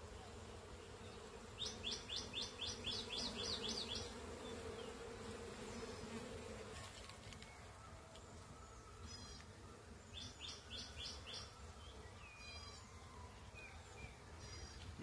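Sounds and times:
honeybees buzzing: 0.0s - 15.0s.

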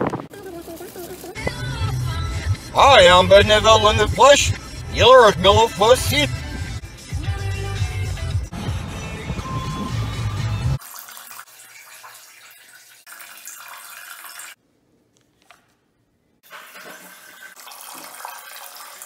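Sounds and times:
urine splashing into toilet water: 10.8s - 14.6s, 16.4s - 19.0s.

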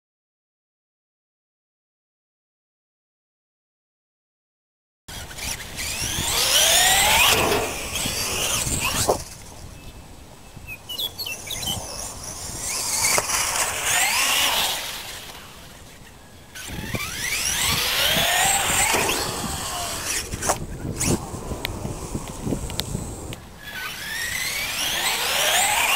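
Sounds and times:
electric motor whining: 5.1s - 9.4s, 11.5s - 25.9s.

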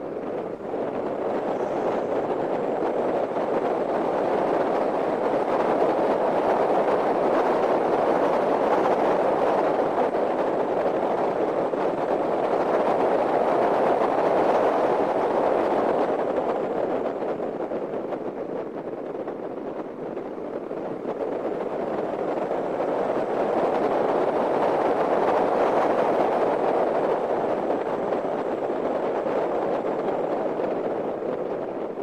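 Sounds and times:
car road and wind noise: 0.0s - 32.0s.

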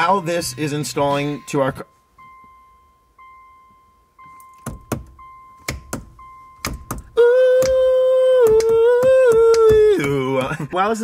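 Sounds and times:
electronic chime beeping: 0.5s - 6.9s
sharp knocks: 4.5s - 7.8s, 8.4s - 10.6s
man singing long note: 7.2s - 10.4s.

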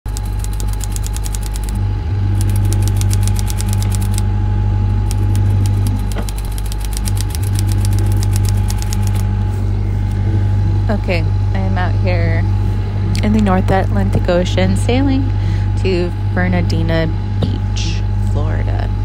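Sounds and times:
typewriter key clacks: 0.1s - 1.8s, 2.4s - 4.2s, 5.1s - 9.2s
low engine hum: 0.8s - 19.0s.

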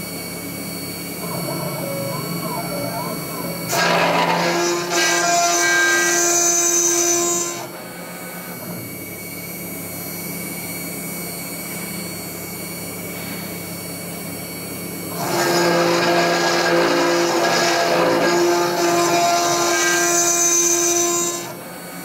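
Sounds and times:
router cutting steel: 1.0s - 7.8s, 15.1s - 22.0s
spindle running: 1.2s - 4.8s.

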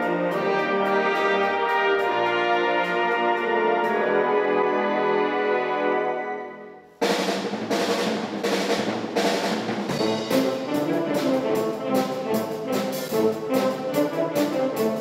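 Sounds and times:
wind band playing: 0.0s - 7.2s, 8.6s - 15.0s
tubas and string basses: 0.0s - 15.0s
drum kit beat: 7.0s - 15.0s.

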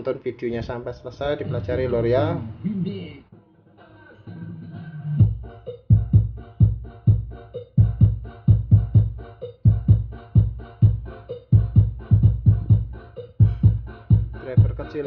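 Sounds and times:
bass-heavy electronic music: 5.2s - 15.0s.

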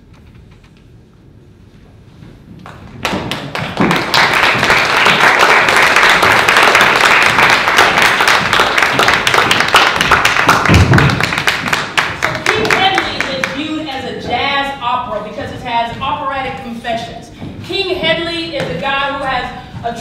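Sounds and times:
audience applauding: 2.7s - 13.6s.

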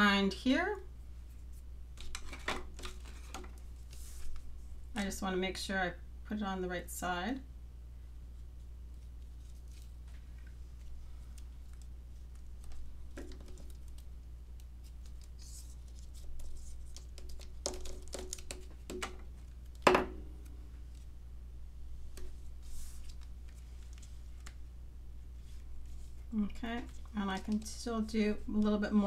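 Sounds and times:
steady low hum: 0.0s - 29.0s
paper handling: 8.9s - 19.8s, 22.1s - 24.7s.

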